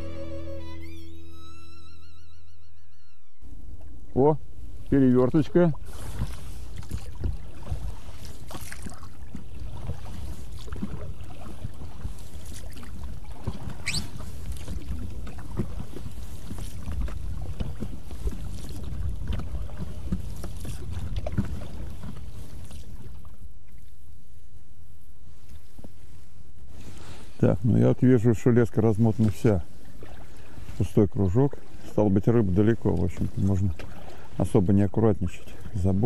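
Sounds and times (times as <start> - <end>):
oars knocking and splashing: 5.3 - 24.0, 28.9 - 36.0.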